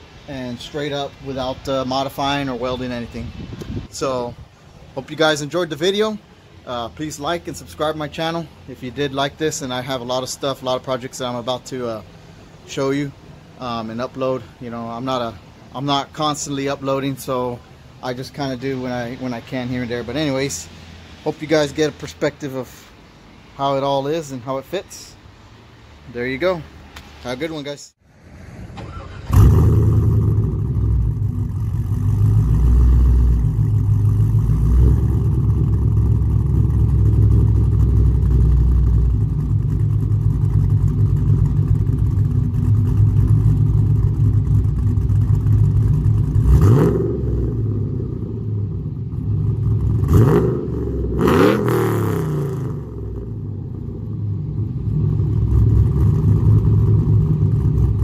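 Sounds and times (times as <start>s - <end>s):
engine throttle blips: 28.6s - 58.0s
car engine idling: 28.8s - 51.5s, 52.6s - 58.0s.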